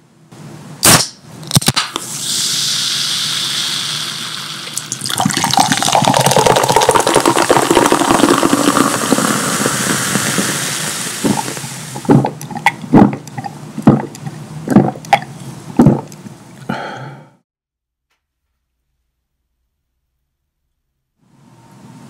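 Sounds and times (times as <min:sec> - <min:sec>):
soda fizzing: 0:02.0 - 0:16.1
soda pouring into glass: 0:02.2 - 0:12.3.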